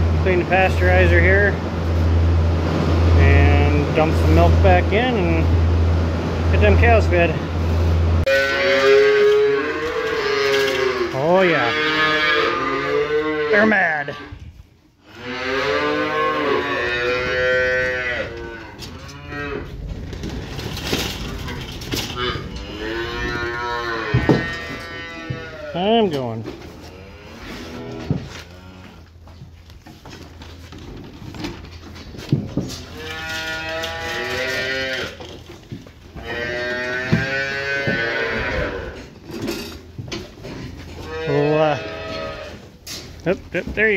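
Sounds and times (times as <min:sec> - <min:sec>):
calves bawling: 0:08.2 - 0:14.4, 0:15.0 - 0:30.4, 0:31.7 - 0:43.9.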